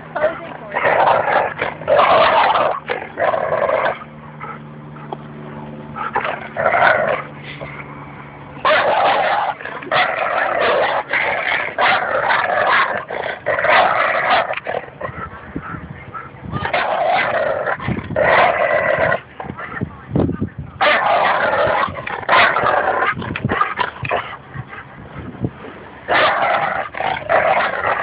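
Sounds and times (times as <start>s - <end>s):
dog play-growling: 0.2s - 7.9s, 8.6s - 19.6s, 20.8s - 24.8s, 26.1s - 28.0s
dog barking: 8.6s - 11.0s, 11.8s - 13.0s, 20.8s - 23.2s, 26.1s - 26.7s.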